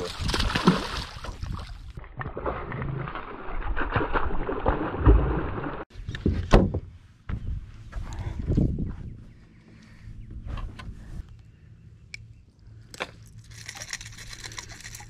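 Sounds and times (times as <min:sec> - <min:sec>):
fish thrashing and splashing water: 0:00.0 - 0:05.8.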